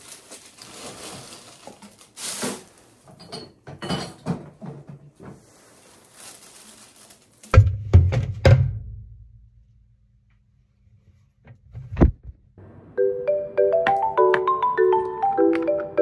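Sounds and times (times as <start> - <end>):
dull thumps: 7.6 - 9.0
light music with mallet melody: 13.0 - 16.0.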